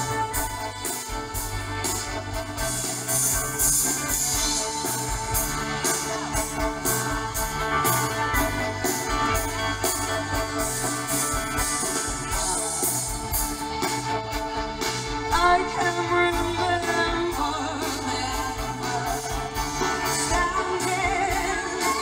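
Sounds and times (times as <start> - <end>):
live band over loudspeakers: 0.0 - 22.0.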